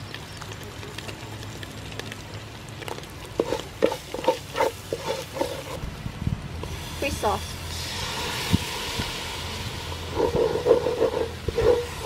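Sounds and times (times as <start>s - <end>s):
paste frying in oil: 0.0s - 12.0s
wooden spoon stirring in pot: 2.8s - 5.8s, 9.8s - 12.0s.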